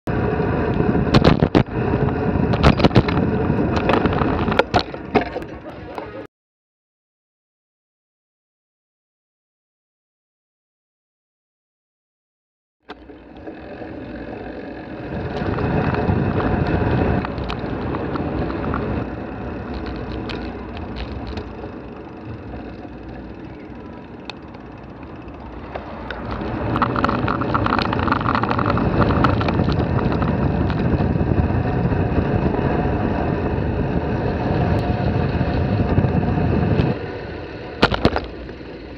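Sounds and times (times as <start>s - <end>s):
wind rushing over microphone: 0.1s - 5.6s, 13.9s - 38.9s
rumbling road noise: 0.1s - 6.3s, 12.8s - 38.9s
small knocks and clicks: 25.6s - 30.8s.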